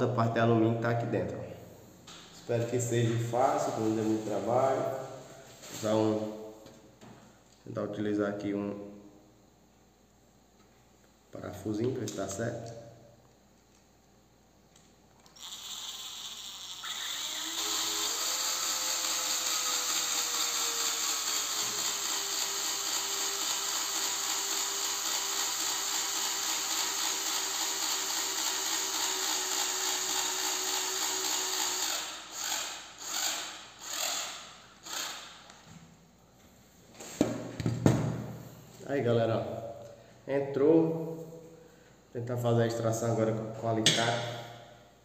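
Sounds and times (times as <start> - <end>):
cordless drill motor whine: 15.3 - 35.2.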